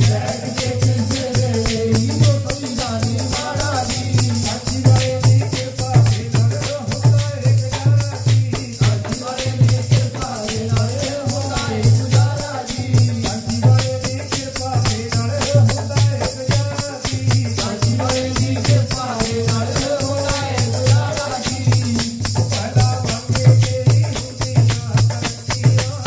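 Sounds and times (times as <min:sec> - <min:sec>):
jingling hand percussion: 0:00.0 - 0:26.0
men singing a hymn: 0:00.0 - 0:26.0.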